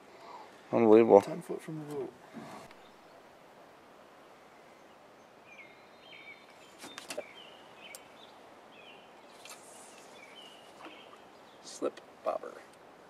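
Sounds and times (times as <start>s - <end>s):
songbird chirping: 1.2s - 12.9s
fishing rod swish: 9.4s - 10.9s.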